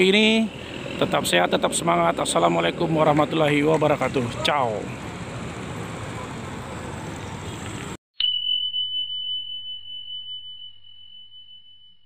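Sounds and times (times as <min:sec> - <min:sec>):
outdoor street noise: 0:00.0 - 0:08.0
bell-like ding: 0:08.2 - 0:12.0.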